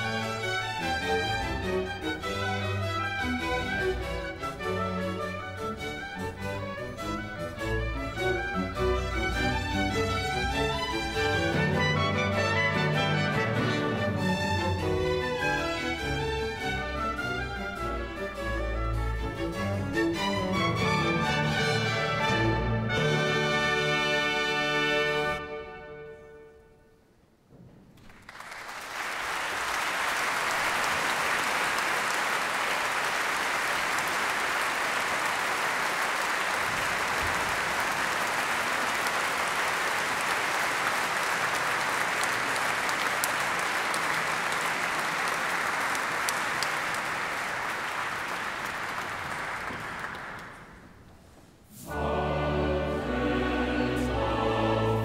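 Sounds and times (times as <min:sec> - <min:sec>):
orchestra playing: 0:00.0 - 0:27.0, 0:51.7 - 0:55.0
audience applauding: 0:28.0 - 0:51.0.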